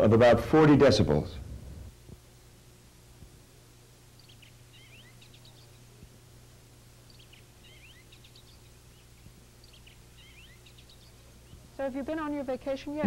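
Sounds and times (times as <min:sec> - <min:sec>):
faint low hum: 0:00.0 - 0:13.0
songbird chirping: 0:03.9 - 0:13.0.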